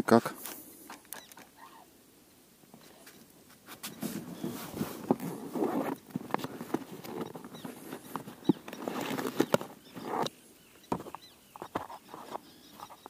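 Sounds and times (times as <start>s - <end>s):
rustling: 2.7s - 13.0s.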